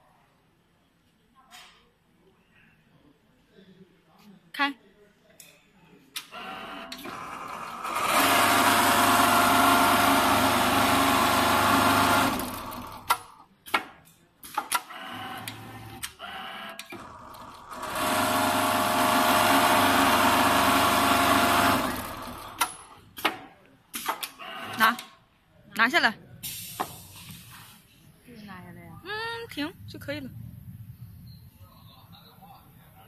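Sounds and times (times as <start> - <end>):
sewing machine stitching: 6.4 - 13.4, 14.6 - 23.0.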